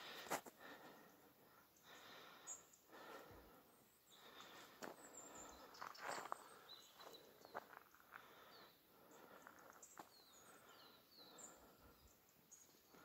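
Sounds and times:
faint high bird chirps: 0:05.0 - 0:07.8
footsteps crunching on stones: 0:05.8 - 0:08.3.

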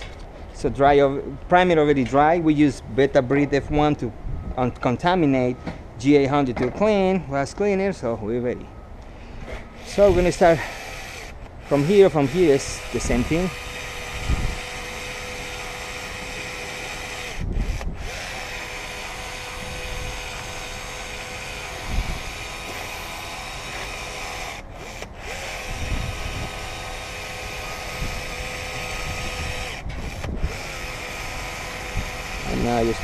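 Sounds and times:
caulking gun motor whine: 0:09.5 - 0:33.0.

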